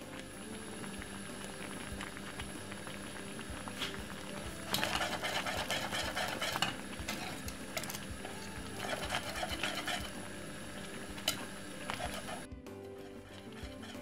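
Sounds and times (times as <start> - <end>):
whisk scraping a saucepan: 3.8 - 14.0.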